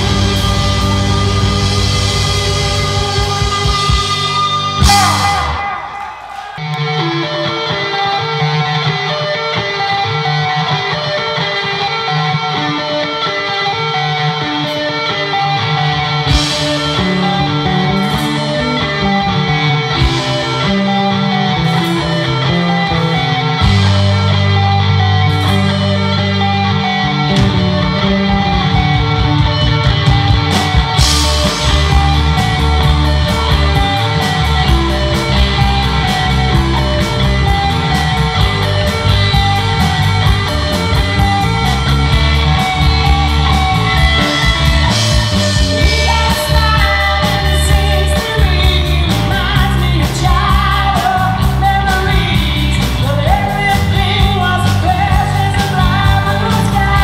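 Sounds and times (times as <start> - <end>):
live rock band playing: 0.0 - 57.0
woman singing lead: 45.5 - 57.0.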